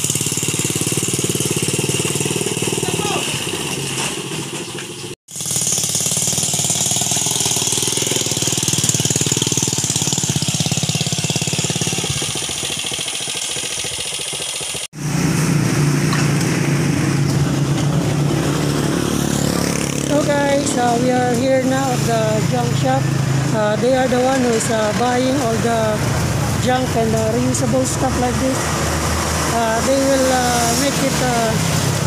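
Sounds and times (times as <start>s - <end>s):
tricycle engine running: 0.0s - 32.0s.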